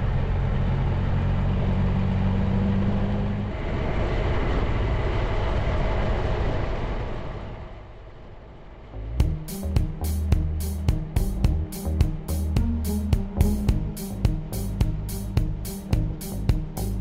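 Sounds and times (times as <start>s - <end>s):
wind and tyre noise: 0.0s - 9.5s
motorcycle engine running: 9.2s - 17.0s.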